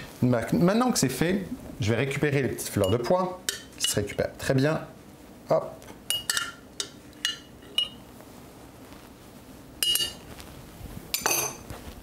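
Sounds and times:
metal spoon clinking on glass: 0:06.1 - 0:08.0, 0:09.8 - 0:10.2, 0:11.1 - 0:11.6.

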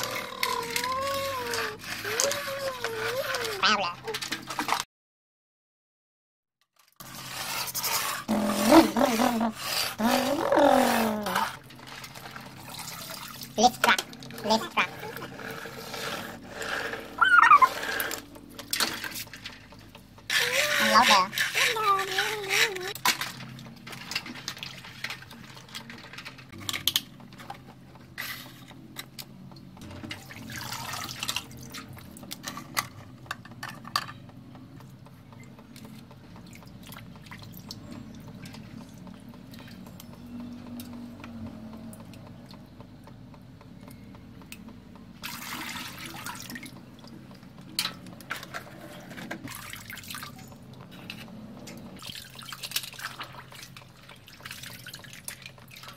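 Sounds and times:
water sloshing in metal basin: 0:06.8 - 0:28.8, 0:29.8 - 0:34.2, 0:45.2 - 0:55.9
water dripping: 0:34.6 - 0:47.8, 0:49.5 - 0:55.9.

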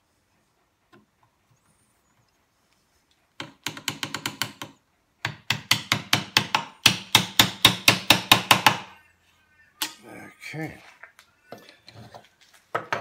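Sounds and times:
mallet tapping chisel: 0:03.4 - 0:08.8.

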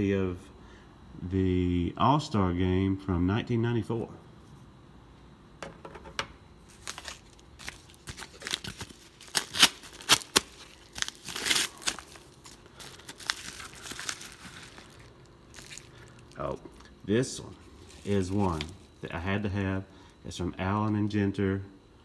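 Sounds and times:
padded mailer tearing and crinkling: 0:06.6 - 0:16.5, 0:17.7 - 0:18.9.

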